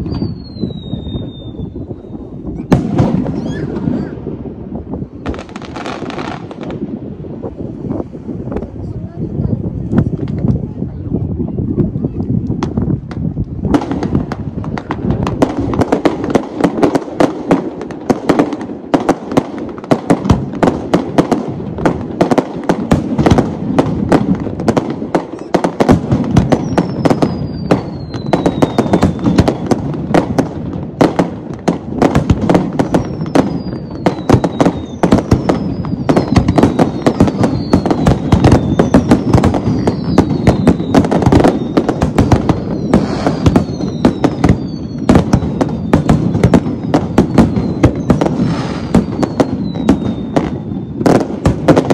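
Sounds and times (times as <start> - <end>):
falling firework whistles: 0.0 - 4.3, 25.3 - 29.8, 32.5 - 51.9
fireworks bangs and crackling: 0.0 - 51.9.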